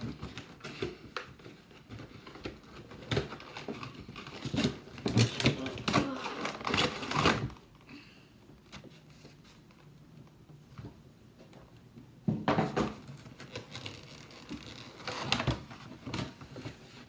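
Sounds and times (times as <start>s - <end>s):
packaging tearing and crackling: 2.6s - 7.7s, 13.2s - 15.6s.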